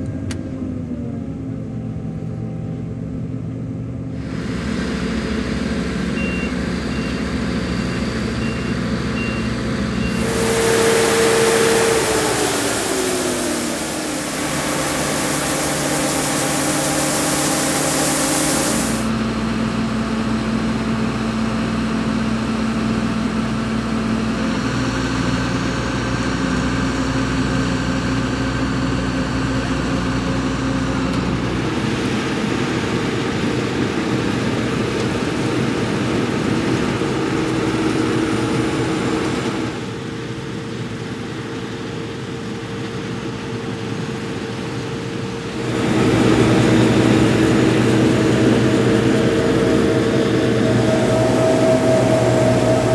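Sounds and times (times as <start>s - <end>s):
combine harvester engine running: 0.0s - 52.9s
grain pouring with hiss: 10.1s - 19.1s.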